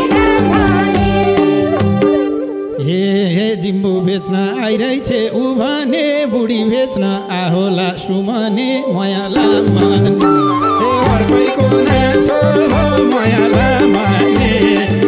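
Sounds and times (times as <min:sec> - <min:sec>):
folk band with hand drum: 0:00.0 - 0:02.8, 0:09.4 - 0:15.0.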